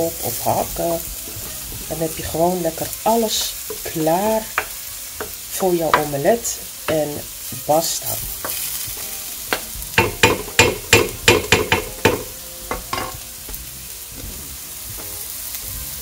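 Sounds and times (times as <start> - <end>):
wooden spoon scraping a pan: 0.0 - 10.0
vegetables sizzling: 0.0 - 16.0.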